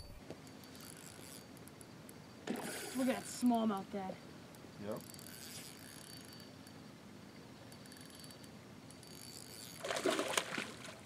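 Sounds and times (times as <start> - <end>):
fishing reel clicking: 0.4 - 3.7, 4.5 - 6.9, 7.6 - 9.8.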